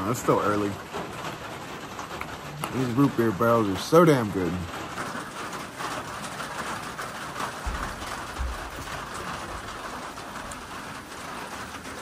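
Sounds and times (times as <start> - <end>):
rain on a metal roof: 0.0 - 12.0
low bumps: 7.6 - 9.9.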